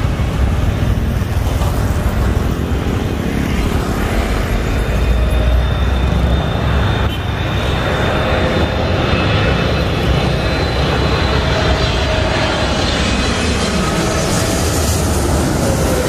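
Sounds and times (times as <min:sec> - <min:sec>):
faint jet whine: 0:00.0 - 0:16.0
jet engines rumbling: 0:00.0 - 0:16.0.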